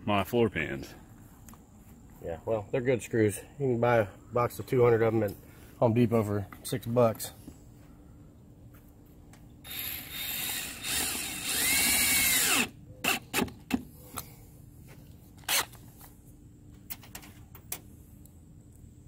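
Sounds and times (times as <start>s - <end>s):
cordless drill whining: 9.7s - 13.2s, 15.4s - 15.8s.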